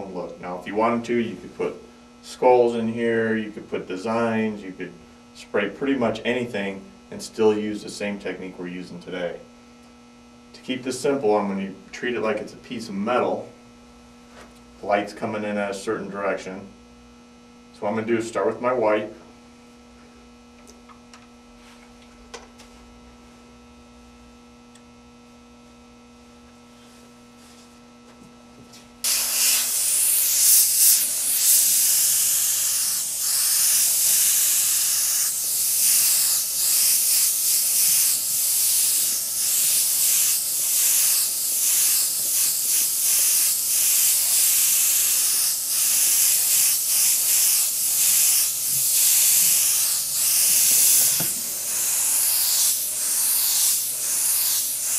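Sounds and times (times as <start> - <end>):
low electrical hum: 0.0 - 54.9
airbrush spraying hiss: 29.0 - 54.9.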